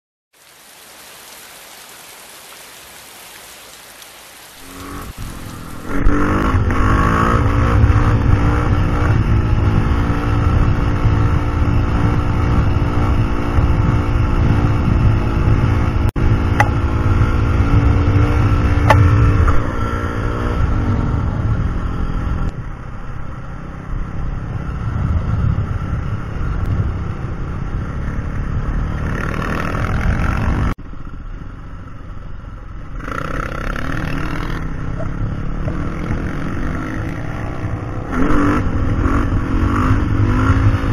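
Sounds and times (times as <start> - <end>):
wind rumble on microphone: 4.6 - 30.8
dirt bike engine running: 4.6 - 40.9.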